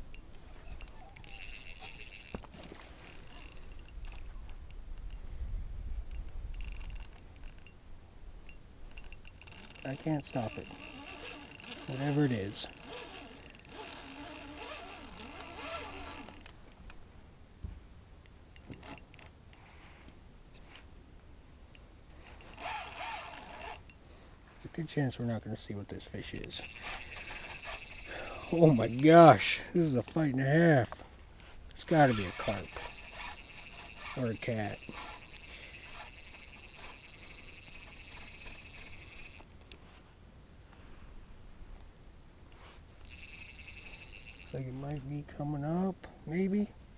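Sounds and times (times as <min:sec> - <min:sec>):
fishing reel drag buzzing: 0:09.0 - 0:16.8, 0:22.2 - 0:24.0, 0:26.6 - 0:29.4, 0:31.4 - 0:39.5.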